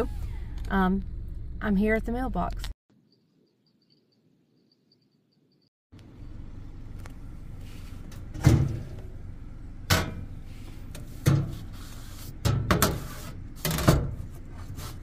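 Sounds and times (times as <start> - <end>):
low steady rumble: 0.0 - 2.8, 6.0 - 15.0
metal mailbox door clunking: 9.9 - 10.3.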